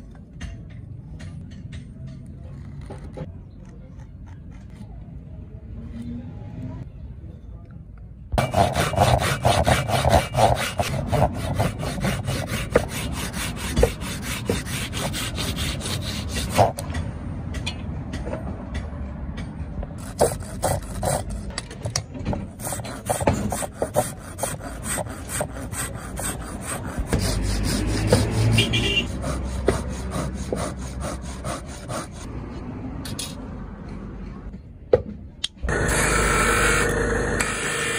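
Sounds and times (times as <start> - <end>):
saw rasping through wood: 8.4 - 16.8, 20.0 - 21.5, 22.5 - 32.3.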